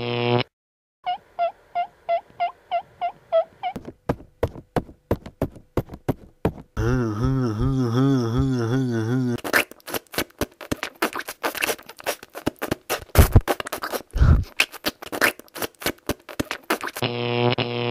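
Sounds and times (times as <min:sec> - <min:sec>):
loud low wobbling buzz: 0:06.8 - 0:09.2.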